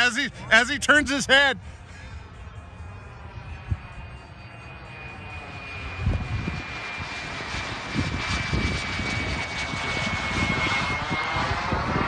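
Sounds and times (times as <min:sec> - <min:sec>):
model jet turbine whining: 0:01.8 - 0:12.0
wind rumbling on microphone: 0:03.2 - 0:04.2, 0:05.8 - 0:12.0.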